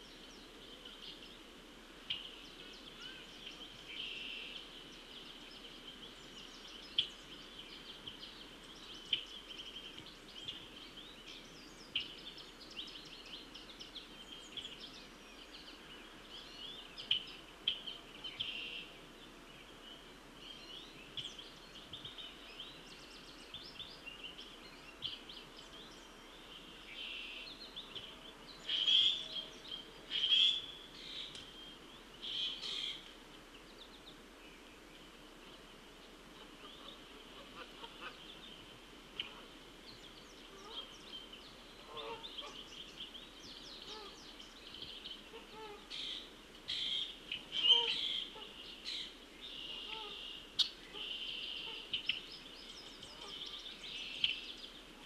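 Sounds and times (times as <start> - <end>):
songbirds chirping and trilling: 0.0 - 55.0.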